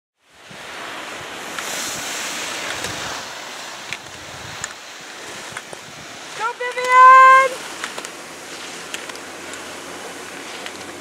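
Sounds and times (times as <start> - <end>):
wind on microphone: 0.2 - 11.0
faint sharp clicks: 8.9 - 9.6.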